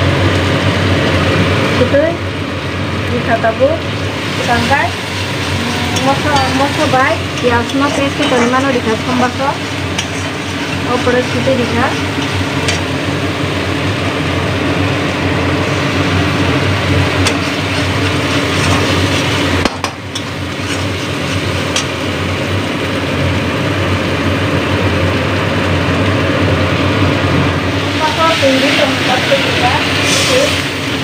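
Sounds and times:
paste frying in wok: 0.0s - 31.0s
steady mechanical hum: 0.0s - 31.0s
steel spoon clinking on pan: 6.0s - 10.9s.

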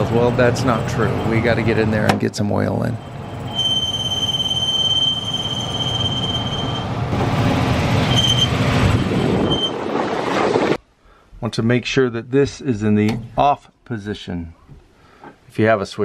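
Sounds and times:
high-pitched bearing squeal: 3.0s - 7.0s, 8.0s - 9.8s.

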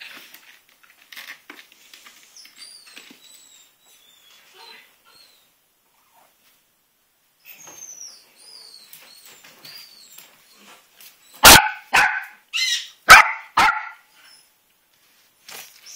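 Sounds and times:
puppy barking: 11.4s - 14.1s.

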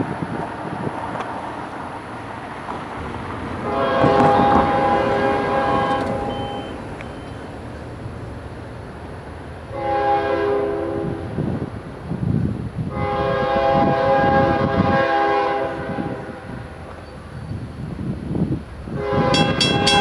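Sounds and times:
train rumbling: 0.0s - 20.0s
locomotive air horn blasts: 3.0s - 7.5s, 9.7s - 11.6s, 12.9s - 16.7s, 18.9s - 20.0s.

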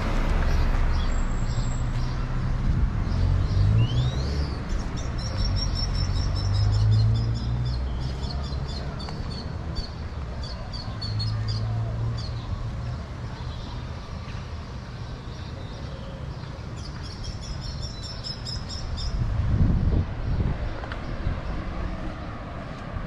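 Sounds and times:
vehicle passing: 0.0s - 10.3s, 19.2s - 23.0s
street traffic rumble: 0.0s - 23.0s.

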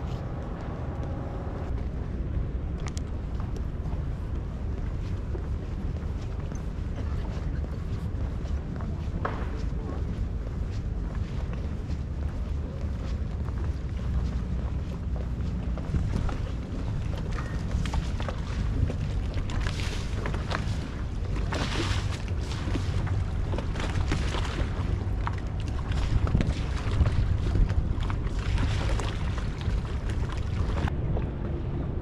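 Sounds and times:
water lapping against boats: 0.0s - 31.4s
wind rumbling on microphone: 0.0s - 32.0s.

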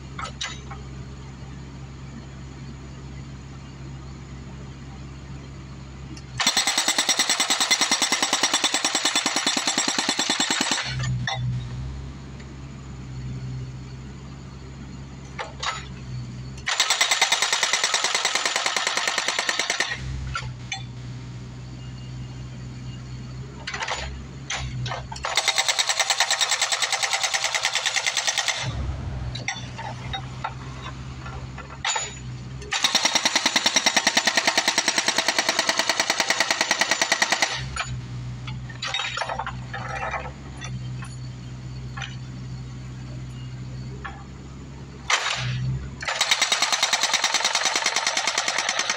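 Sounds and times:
diesel engine running: 19.7s - 48.9s
hydraulic hammer breaking concrete: 45.1s - 48.9s.

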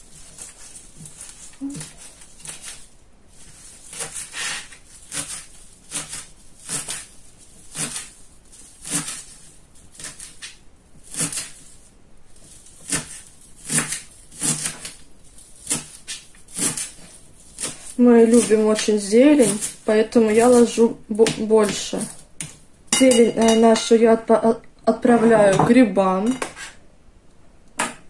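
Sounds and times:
knife chopping on plastic board: 12.8s - 15.0s, 21.1s - 23.6s.

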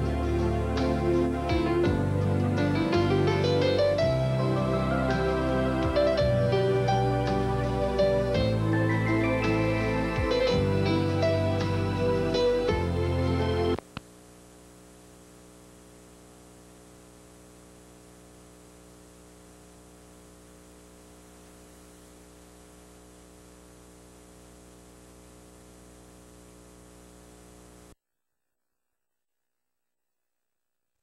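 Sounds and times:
electrical hum: 0.0s - 28.0s
faint static hiss: 0.0s - 31.0s
click: 13.8s - 14.1s.

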